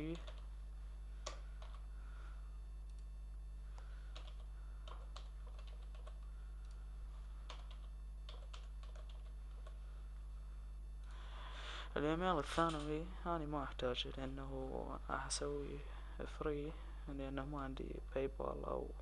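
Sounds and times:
computer keyboard typing: 0:00.0 - 0:00.5, 0:01.2 - 0:01.8, 0:04.1 - 0:06.8, 0:07.5 - 0:09.8
low electrical hum: 0:00.0 - 0:19.0.

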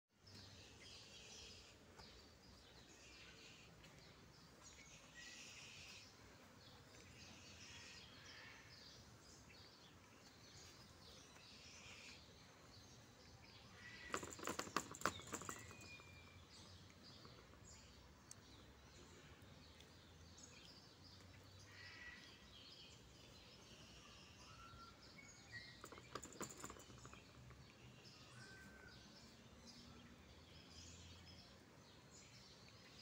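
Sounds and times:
faint bird chirps: 0:00.4 - 0:09.5, 0:21.6 - 0:31.4
sharp clicks and knocks: 0:14.1 - 0:15.9, 0:25.8 - 0:27.6.

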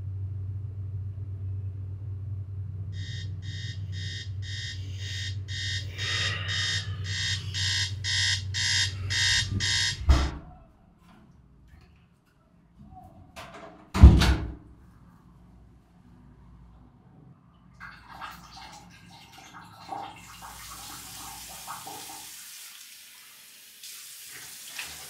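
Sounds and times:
low steady hum: 0:00.0 - 0:12.8
phone alarm beeping: 0:03.0 - 0:10.4
loud thump: 0:10.0 - 0:10.5.

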